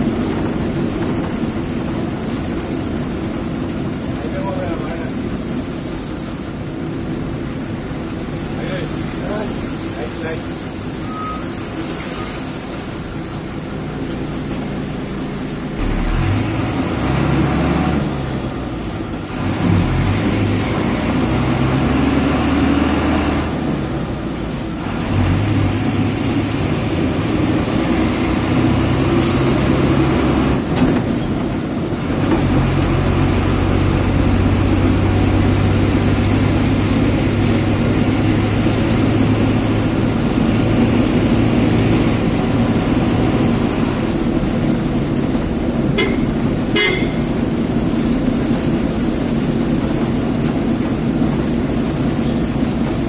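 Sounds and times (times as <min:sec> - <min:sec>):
bus diesel engine: 0:00.0 - 0:53.0.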